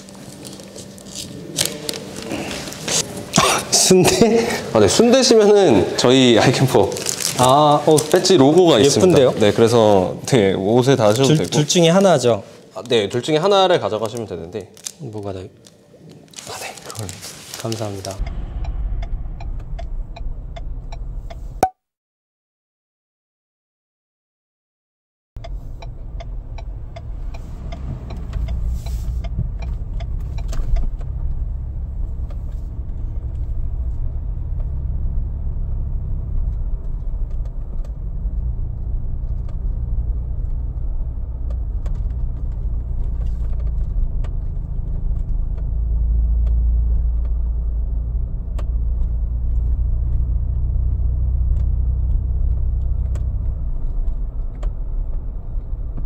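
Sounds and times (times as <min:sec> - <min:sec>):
car rumbling: 0:17.9 - 0:21.6, 0:25.4 - 0:56.0.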